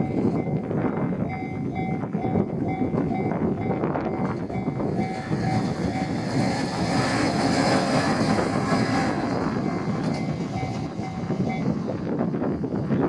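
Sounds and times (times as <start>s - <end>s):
crossing bell ringing: 0.0s - 0.6s, 1.2s - 6.5s, 9.6s - 11.8s
diesel train running: 0.0s - 13.0s.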